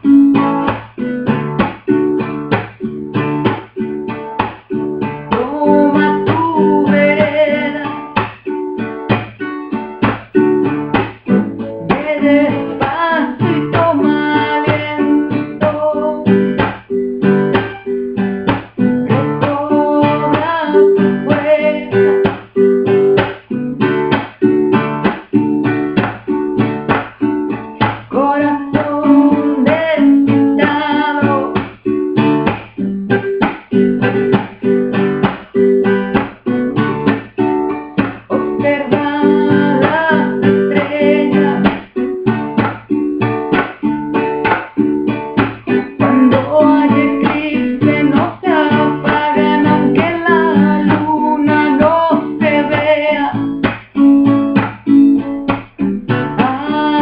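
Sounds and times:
strummed acoustic guitar: 0:00.0 - 0:57.0
woman singing: 0:05.0 - 0:08.5, 0:10.9 - 0:24.3, 0:26.9 - 0:32.7, 0:38.0 - 0:42.7, 0:45.4 - 0:57.0.

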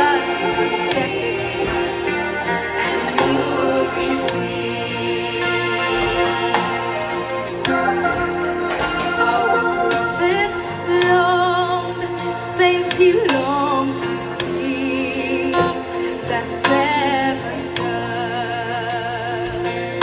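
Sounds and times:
sustained accompaniment chords: 0:00.0 - 0:12.7.

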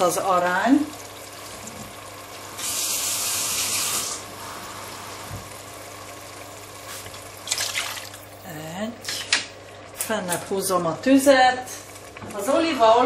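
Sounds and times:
water pouring: 0:07.0 - 0:08.4.

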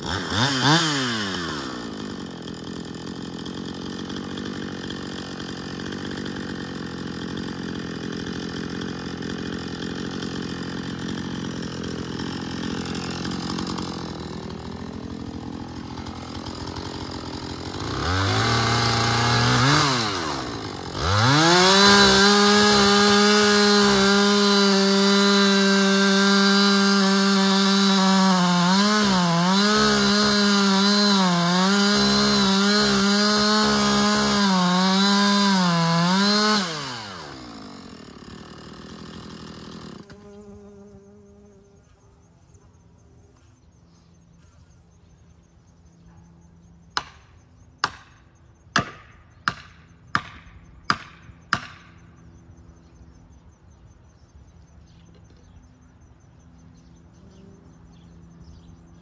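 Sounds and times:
chainsaw revving and cutting: 0:00.0 - 0:41.0.

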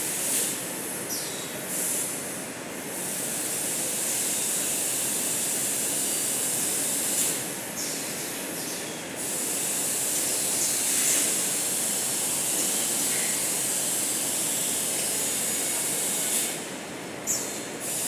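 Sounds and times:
machinery running with hiss: 0:00.0 - 0:18.0.

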